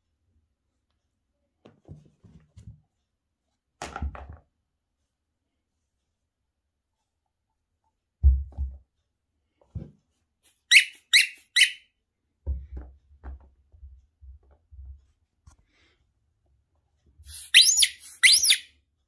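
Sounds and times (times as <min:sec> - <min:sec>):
toys thudding onto a rug: 0:03.8 - 0:04.5
squeaky dog toy squeaking: 0:10.6 - 0:11.9, 0:17.3 - 0:18.7.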